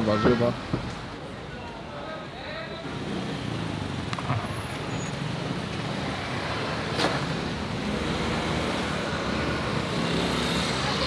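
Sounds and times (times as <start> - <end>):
cars and scooters driving past: 2.7 - 11.0.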